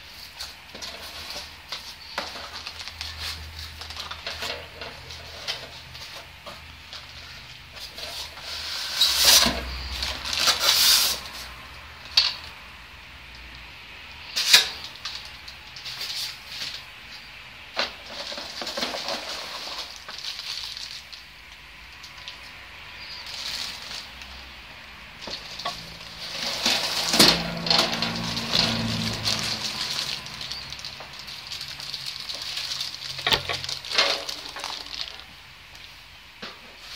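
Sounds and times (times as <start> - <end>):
plastic bags rustling: 0.0 - 12.7, 14.2 - 36.9
styrofoam and cardboard scraping: 7.2 - 11.6, 17.8 - 21.0, 25.2 - 35.3.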